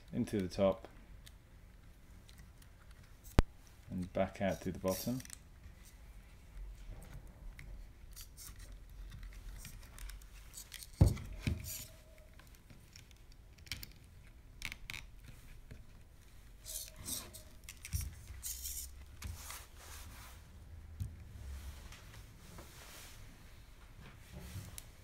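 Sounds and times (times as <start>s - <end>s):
small plastic clicks and rustles: 0.0s - 6.0s, 7.1s - 11.0s, 11.6s - 19.4s.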